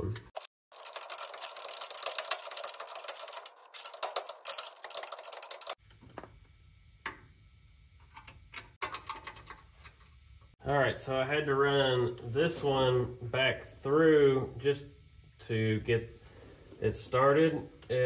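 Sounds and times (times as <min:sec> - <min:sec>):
hand ratchet clicking: 0:00.7 - 0:05.8.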